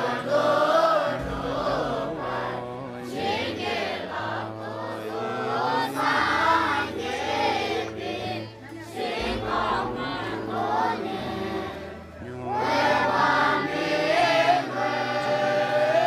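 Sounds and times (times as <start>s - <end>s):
low steady drone: 0.0s - 16.0s
young voices chanting prayers: 0.0s - 16.0s.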